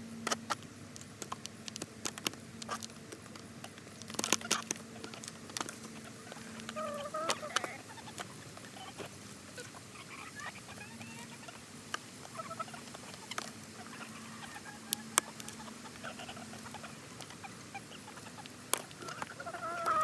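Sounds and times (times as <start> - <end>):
beaks tapping on foil: 0.2 - 20.0
hen wavering call: 6.0 - 11.6, 12.3 - 20.0.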